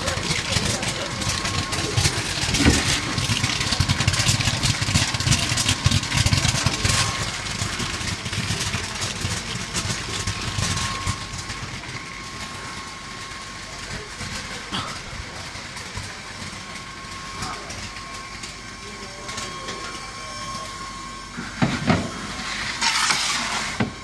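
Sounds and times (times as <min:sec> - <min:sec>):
rapid crackle of clicks: 0:00.0 - 0:12.6
sorting machine humming: 0:00.0 - 0:24.0.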